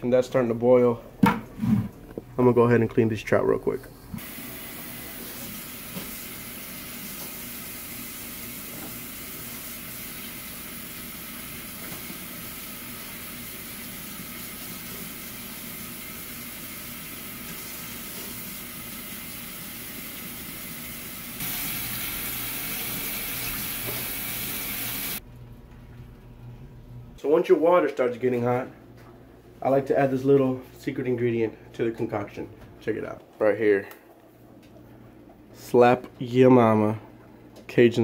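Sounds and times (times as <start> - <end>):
faucet water running into sink: 4.2 - 25.2.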